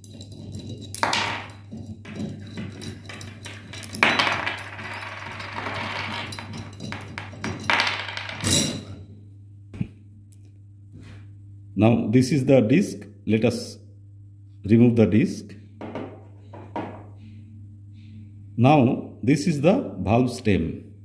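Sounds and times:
metal rasping: 0:00.0 - 0:04.0
metal clattering: 0:00.0 - 0:09.0
metal parts clinking and scraping: 0:00.0 - 0:09.0.

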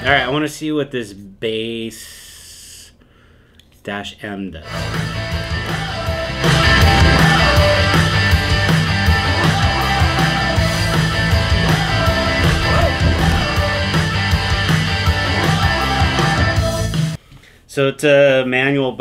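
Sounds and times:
loud rock music: 0:04.8 - 0:17.2.

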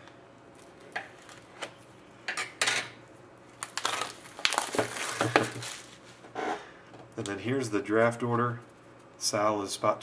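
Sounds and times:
plastic wrap crackling and rustling: 0:00.4 - 0:02.0, 0:03.1 - 0:06.2.

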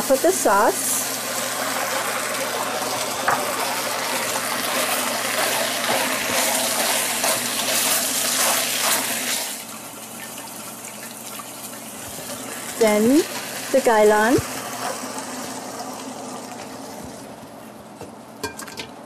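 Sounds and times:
sauce sizzling in a hot pot: 0:00.0 - 0:17.8
spatula stirring: 0:04.7 - 0:09.0.

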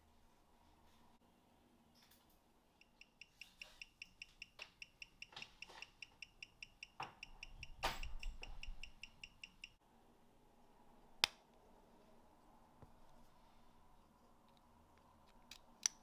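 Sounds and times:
mechanical watch ticking: 0:02.8 - 0:09.8.

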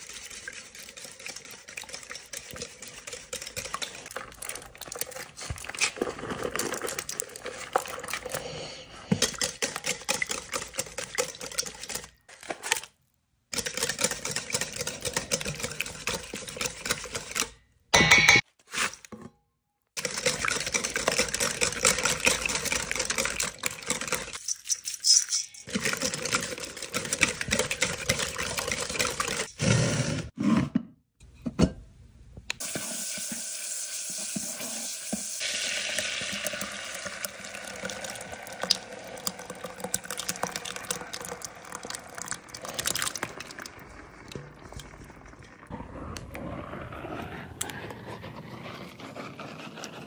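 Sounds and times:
scrape in a pan: 0:18.6 - 0:19.1, 0:46.5 - 0:50.0
food crackling in a pan: 0:34.8 - 0:45.7.

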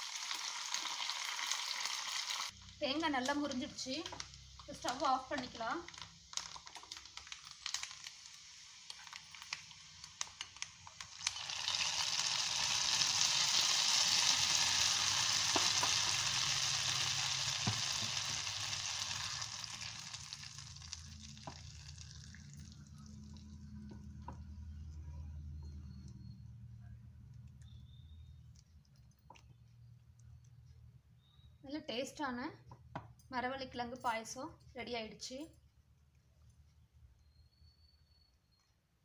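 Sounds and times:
hot ghee sizzling: 0:00.0 - 0:26.7.

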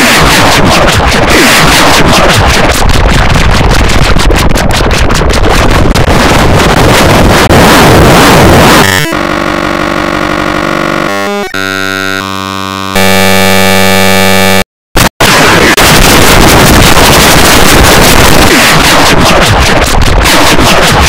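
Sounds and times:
harsh dense noise: 0:00.0 - 0:21.0
synthetic tones: 0:07.5 - 0:14.6.

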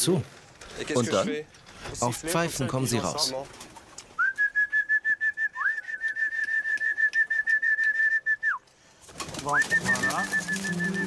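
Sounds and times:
man whistling high trills: 0:04.2 - 0:08.6, 0:09.5 - 0:11.0.

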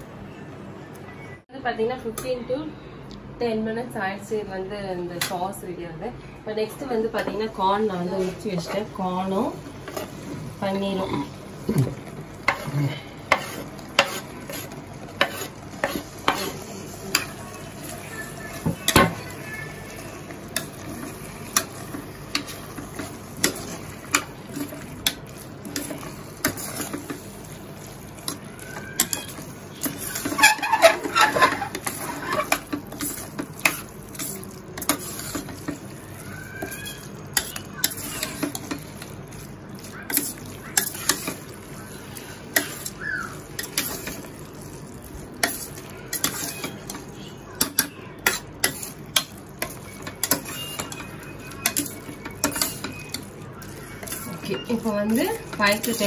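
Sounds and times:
food sizzling in pan: 0:06.8 - 0:56.0
metal spoon scraping pot: 0:13.3 - 0:17.4, 0:29.0 - 0:35.9, 0:43.6 - 0:44.3, 0:45.4 - 0:47.0, 0:47.6 - 0:56.0.

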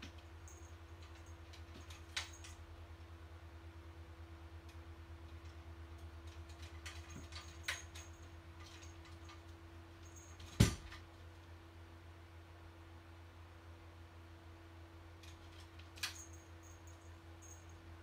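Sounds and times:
cat thumping off rack: 0:10.4 - 0:11.1.

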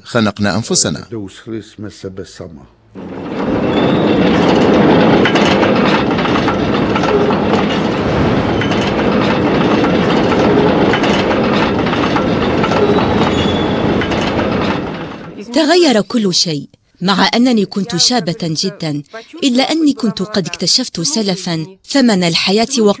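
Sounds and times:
wheels clicking over rail joints: 0:03.0 - 0:16.3
freight train rumbling: 0:03.0 - 0:16.4, 0:17.1 - 0:21.6.

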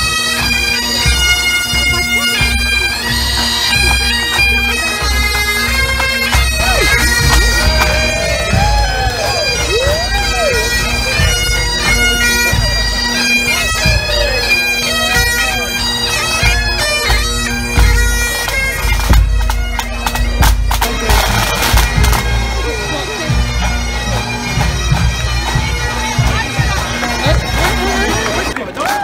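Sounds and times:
bagpipes droning: 0:00.0 - 0:28.9
drumming: 0:03.4 - 0:15.6.

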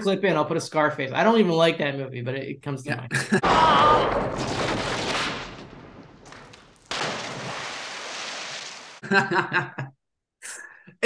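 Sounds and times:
gunfire blasts: 0:03.4 - 0:07.6.

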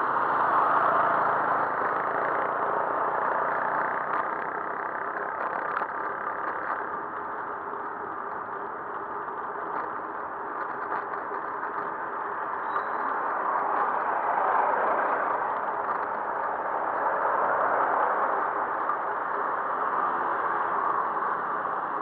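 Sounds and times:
road and traffic rush: 0:00.0 - 0:22.0
faint ticks: 0:01.8 - 0:14.2.

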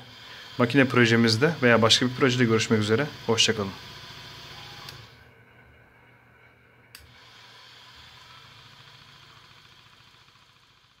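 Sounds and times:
faint low hum: 0:04.4 - 0:07.2.

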